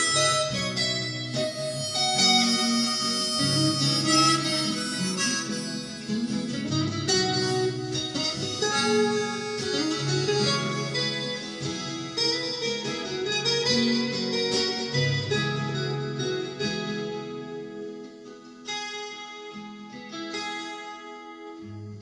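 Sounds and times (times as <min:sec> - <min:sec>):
reed instrument melody: 0:00.0 - 0:17.5
acoustic guitar playing: 0:00.0 - 0:22.0.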